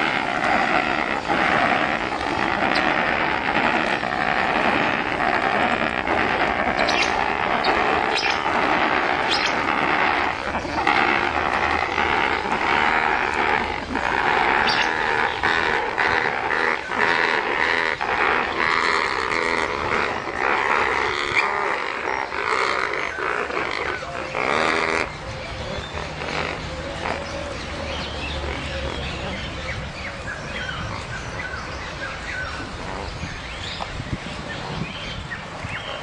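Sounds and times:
flamingos honking: 0.0s - 36.0s.

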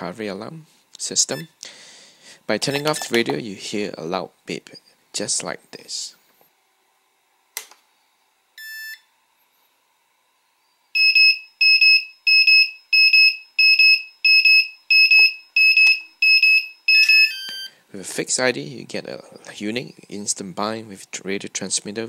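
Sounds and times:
quadcopter alarm beeping: 11.0s - 17.7s.

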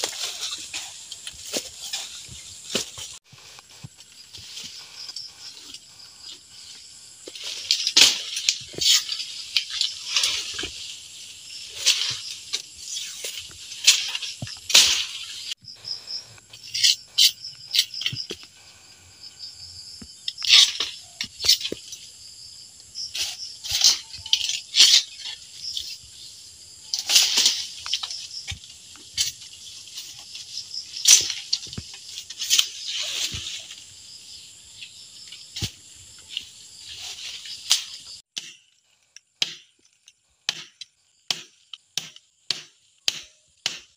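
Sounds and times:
brush rustling and snapping: 0.0s - 5.8s, 11.7s - 15.6s, 26.9s - 33.8s
machete chops: 13.2s - 15.3s, 39.4s - 39.7s, 40.5s - 43.9s.

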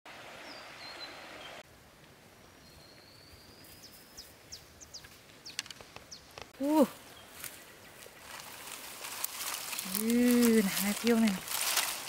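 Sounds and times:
river water flowing: 0.1s - 2.4s, 7.0s - 12.0s
birdsong whistles and chirps: 2.5s - 6.3s.

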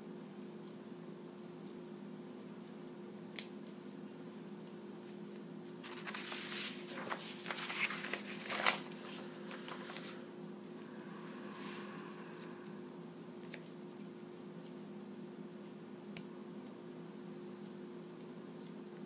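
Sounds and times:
steady low hum: 0.0s - 19.0s
paper rustling and crackling: 5.8s - 10.2s.

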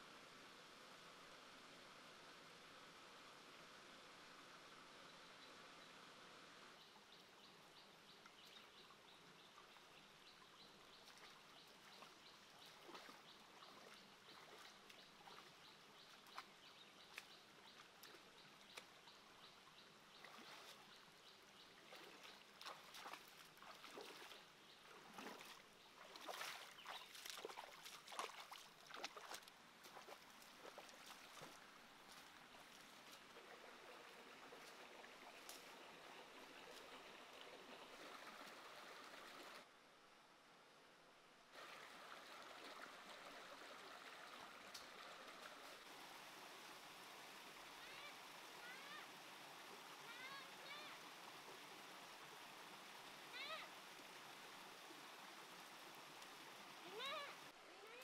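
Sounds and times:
shallow stream flowing: 0.0s - 58.0s
feet wading in shallow water: 11.0s - 19.0s, 20.1s - 21.0s, 21.6s - 35.8s.

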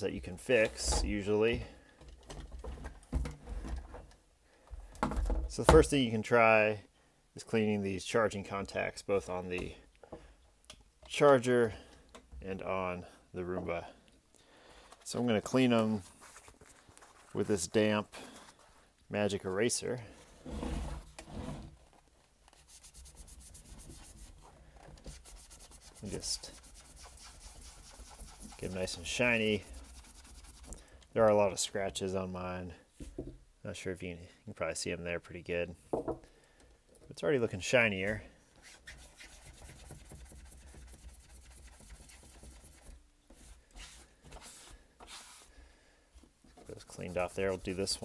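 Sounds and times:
sponge scrubbing metal contacts: 46.6s - 48.0s.

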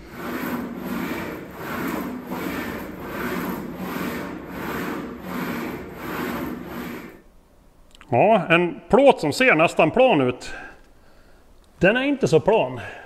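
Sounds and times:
sheet metal rasping in wheel: 0.0s - 7.3s.

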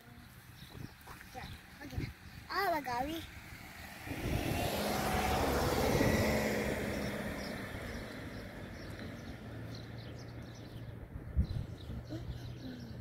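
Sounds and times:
car passing by: 3.4s - 10.2s.

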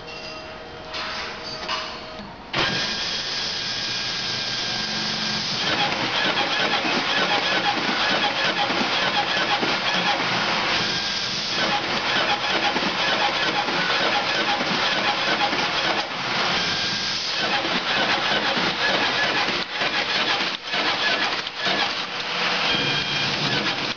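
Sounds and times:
card cutter mechanical clatter: 5.6s - 10.3s, 11.5s - 16.1s, 17.3s - 23.9s.

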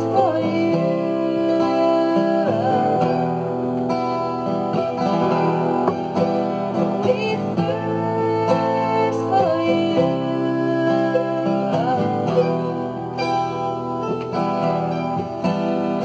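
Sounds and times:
woman singing wordless ooh: 0.0s - 3.8s, 6.8s - 13.4s
acoustic guitar: 0.0s - 16.0s
mandolin: 0.0s - 16.0s.

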